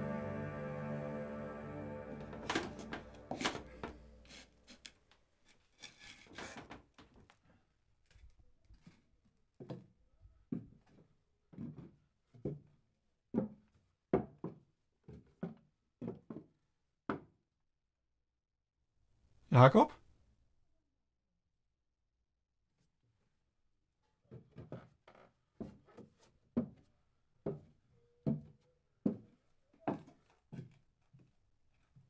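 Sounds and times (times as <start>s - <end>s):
soft music: 0.0s - 4.8s
wooden clogs on tiled floor: 3.4s - 17.2s.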